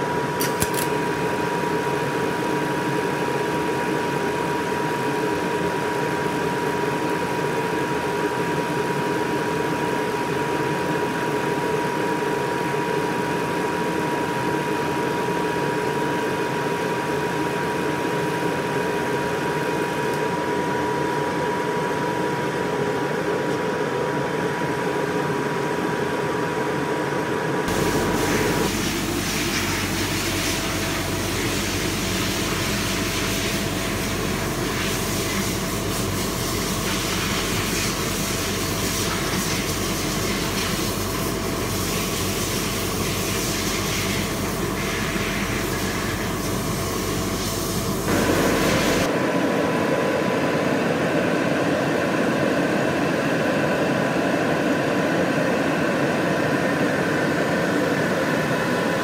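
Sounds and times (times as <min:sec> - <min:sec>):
machine shop lathe running: 0:18.2 - 0:50.4.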